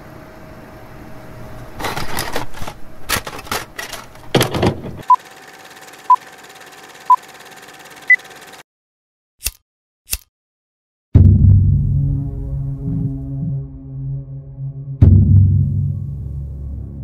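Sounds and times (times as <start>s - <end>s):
projector rattle: 1.8s - 8.6s.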